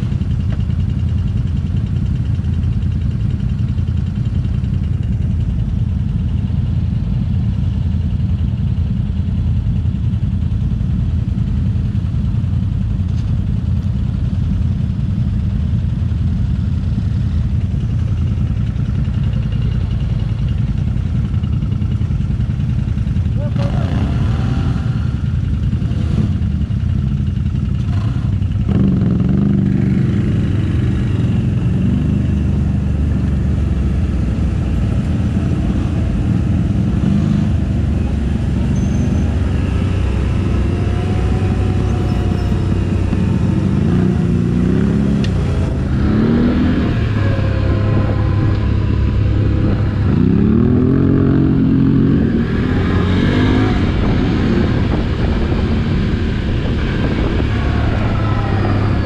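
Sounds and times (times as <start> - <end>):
off-road vehicle engine revving: 23.4 - 26.7, 27.8 - 59.0.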